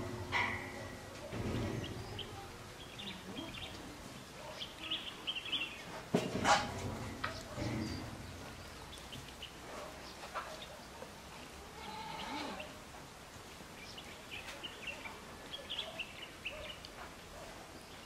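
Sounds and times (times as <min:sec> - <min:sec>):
small birds chirping: 0:00.3 - 0:06.1, 0:07.0 - 0:12.8, 0:13.7 - 0:18.0.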